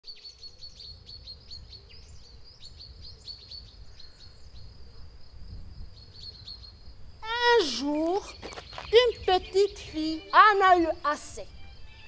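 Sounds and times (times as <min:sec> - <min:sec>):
birds chirping: 0:05.9 - 0:12.0.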